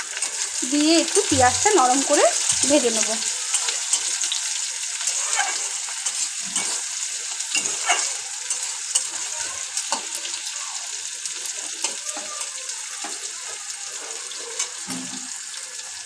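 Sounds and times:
onions sizzling in hot oil: 0:00.0 - 0:16.0
metal spatula scraping pan: 0:05.0 - 0:09.3.

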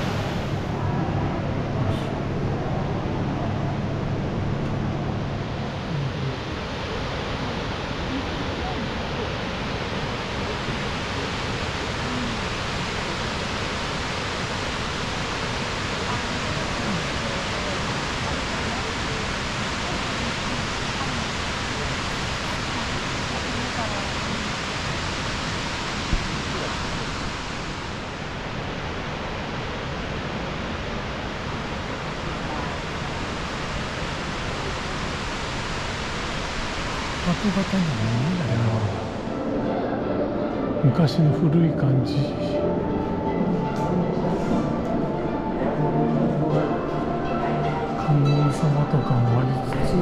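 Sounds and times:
waterfall rushing: 0:05.7 - 0:39.6.

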